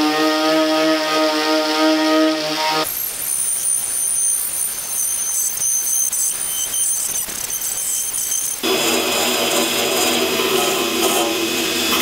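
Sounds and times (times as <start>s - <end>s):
grinder motor running: 0.0s - 3.1s, 8.2s - 12.0s
wire wheel grinder scraping paint: 0.0s - 12.0s.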